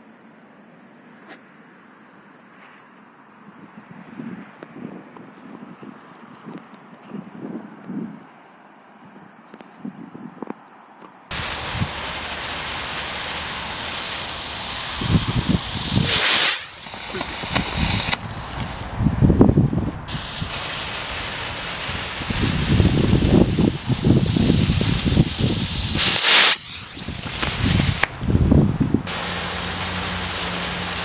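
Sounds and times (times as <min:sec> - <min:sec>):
firework rockets hissing: 0:11.3 - 0:19.2, 0:20.1 - 0:31.0.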